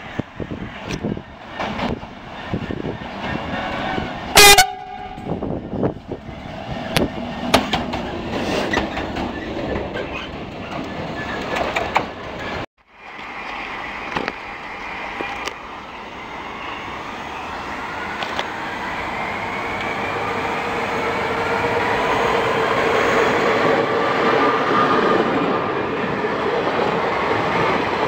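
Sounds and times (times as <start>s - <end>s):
locomotive engine and wheel noise: 0.0s - 28.0s
train horn blast: 3.9s - 5.5s.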